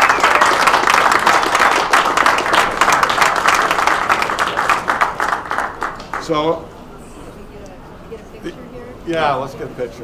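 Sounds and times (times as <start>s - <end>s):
crowd applauding: 0.0s - 6.5s.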